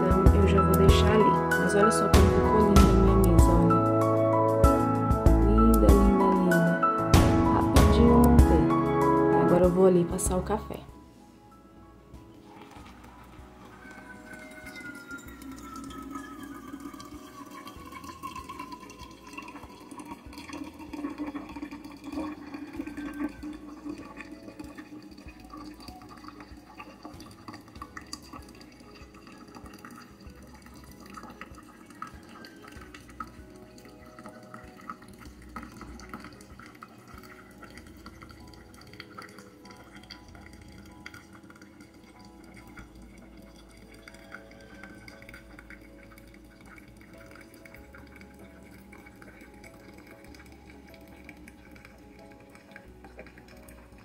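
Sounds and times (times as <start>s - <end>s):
coffee trickling and dripping: 12.1s - 54.0s
hot water pouring onto coffee: 12.4s - 54.0s.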